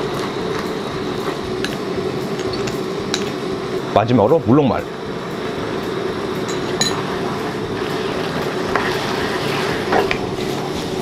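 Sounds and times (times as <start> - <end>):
sauce simmering hiss: 0.0 - 11.0
spoon clinking: 2.4 - 3.4, 6.5 - 7.1.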